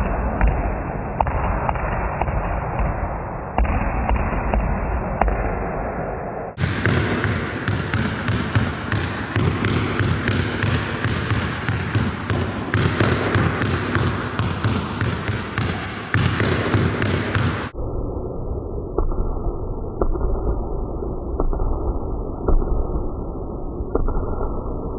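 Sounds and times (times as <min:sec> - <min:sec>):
basketball bouncing on hard floor: 0:06.6 - 0:17.7.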